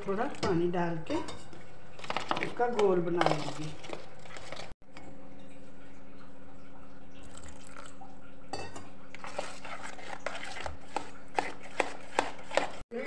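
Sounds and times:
batter being mixed in bowl: 0:00.0 - 0:04.8, 0:09.1 - 0:13.0
clinks against metal bowl: 0:08.5 - 0:09.0.

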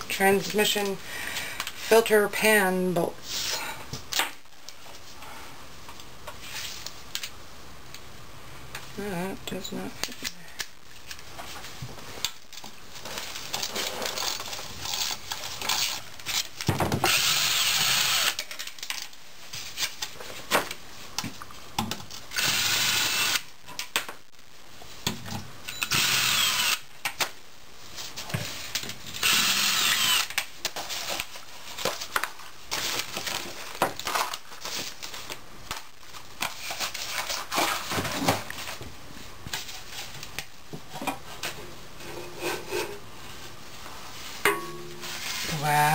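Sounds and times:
cordless drill running out bolts: 0:17.1 - 0:18.4, 0:25.9 - 0:26.8, 0:29.2 - 0:30.3.

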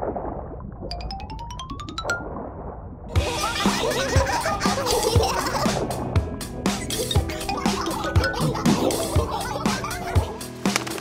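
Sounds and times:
rising plinking notes: 0:00.9 - 0:02.6.

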